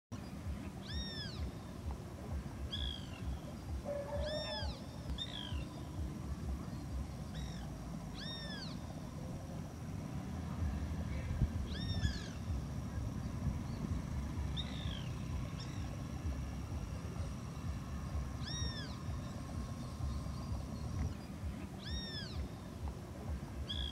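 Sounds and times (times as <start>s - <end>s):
wind rumble on microphone: 9.6s - 23.9s.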